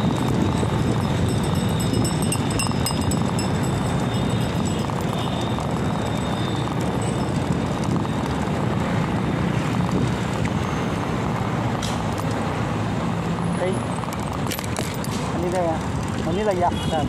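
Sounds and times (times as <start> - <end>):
bicycle rolling over bricks: 0.0 - 9.0
wind buffeting microphone: 0.0 - 10.6.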